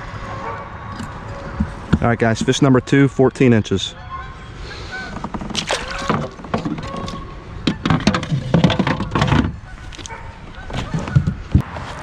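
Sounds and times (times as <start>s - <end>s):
handling knocks and clicks: 5.1s - 11.6s.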